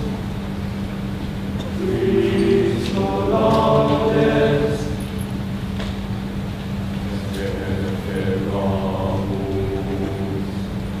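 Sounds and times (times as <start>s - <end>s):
choir holding a sustained chord: 1.7s - 5.2s, 7.1s - 11.0s.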